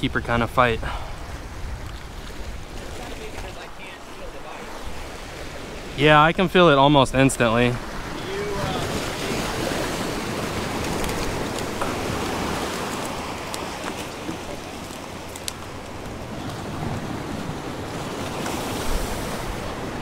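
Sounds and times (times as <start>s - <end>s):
surf splashing against rocks: 0.3s - 20.0s
faint clicks: 14.8s - 16.2s.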